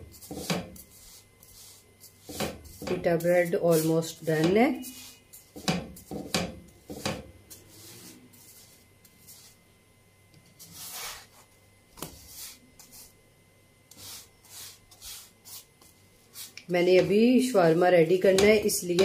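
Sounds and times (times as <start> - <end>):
spatula scraping frying pan: 0.1 - 9.6
spatula tapping: 2.0 - 7.3, 18.1 - 19.0.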